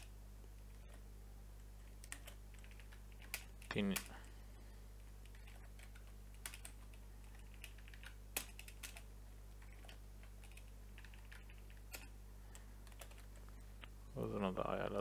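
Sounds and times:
low electrical hum: 0.0 - 15.0
keyboard typing: 1.8 - 4.2, 5.2 - 13.5.

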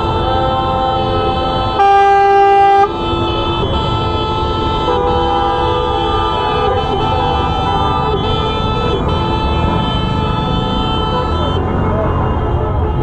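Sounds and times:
loud car horn blast: 0.0 - 13.0
many car horns honking: 0.0 - 13.0.

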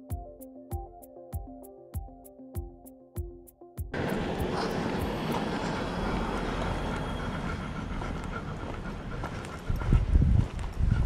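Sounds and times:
background music: 0.0 - 5.9
outdoor air rushing noise: 4.0 - 10.4.

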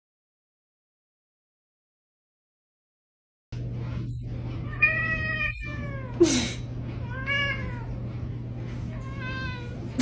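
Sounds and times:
steady low hum: 3.6 - 10.0
cat meowing: 4.7 - 6.2, 7.0 - 8.0, 9.0 - 10.0.

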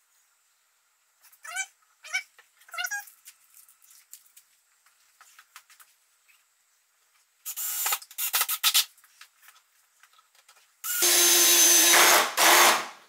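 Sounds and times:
cordless drill driving screw into wood: 10.9 - 13.0.

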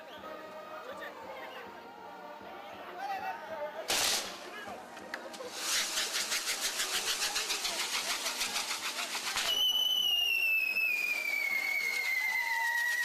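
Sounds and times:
fireworks crackling pops: 3.9 - 13.0
whistling firework: 5.5 - 13.0.

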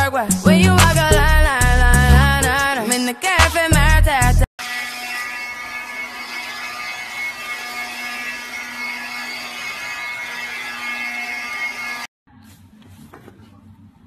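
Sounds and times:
motorised floor mop buzzing: 4.6 - 12.1.

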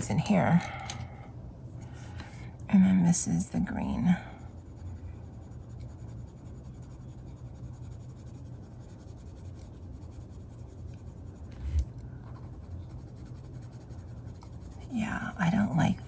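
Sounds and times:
steady low hum: 0.0 - 16.0
colored pencil scratching on paper: 3.6 - 16.0.

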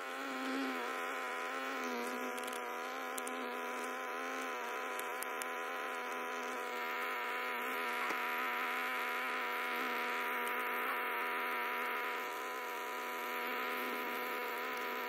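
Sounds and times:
honeybees buzzing: 0.0 - 15.0
faint ticks: 1.7 - 6.8, 7.8 - 8.3, 10.3 - 10.8, 14.1 - 15.0.

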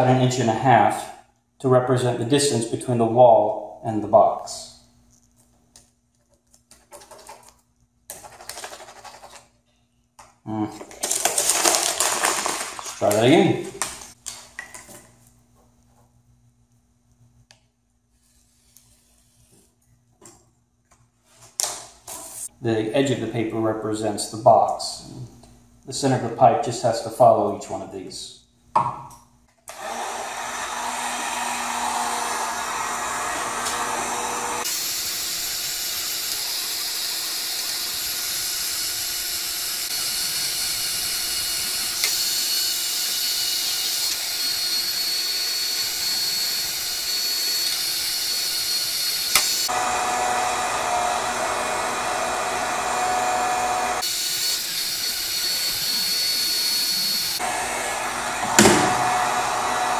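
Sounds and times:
heat gun fan blowing: 29.7 - 59.9.

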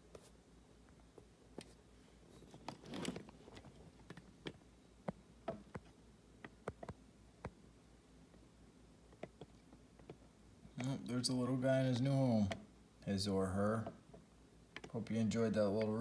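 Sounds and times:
light handling clicks and taps: 13.8 - 16.0.

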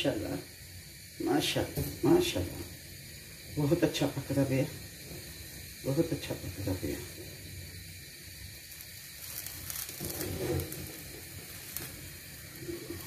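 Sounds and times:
eggplant skin sizzling and crackling: 0.0 - 13.0
gas flame hissing: 0.0 - 13.0.

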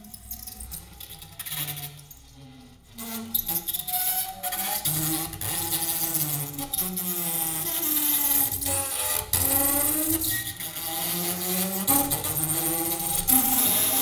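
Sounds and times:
double bass bowed hard: 1.0 - 14.0.

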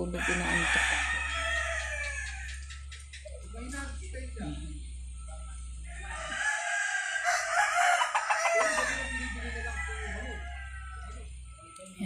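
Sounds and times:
rooster crowing: 0.0 - 3.0, 5.8 - 11.6.

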